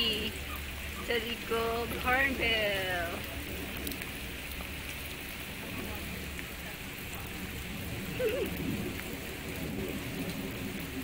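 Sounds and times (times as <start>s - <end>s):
steady rain: 0.0s - 11.0s
faint drip ticks: 3.1s - 5.0s
low wavering voice-like call: 8.1s - 8.6s.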